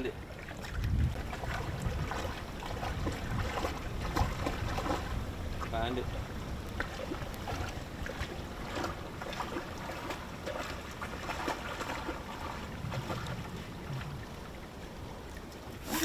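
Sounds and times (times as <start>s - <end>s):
wind rumbling on microphone: 0.0s - 16.0s
dog splashing in creek: 6.8s - 14.4s, 15.6s - 16.0s.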